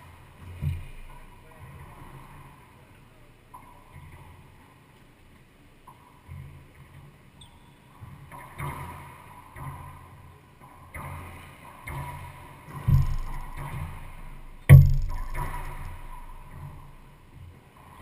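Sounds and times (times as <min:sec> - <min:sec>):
ball hitting racquets and walls: 0:12.7 - 0:17.0
ball bouncing: 0:12.8 - 0:17.0.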